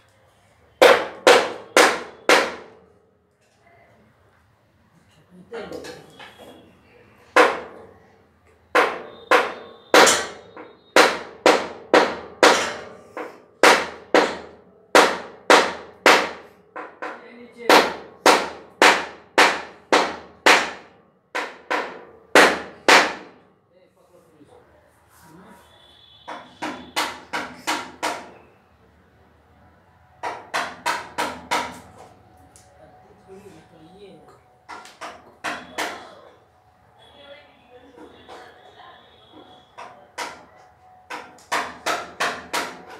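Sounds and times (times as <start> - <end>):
loud sharp ringing knocks: 0.8 - 2.8, 8.7 - 23.4, 26.0 - 28.5, 30.2 - 31.8, 34.7 - 36.2, 39.3 - 42.9.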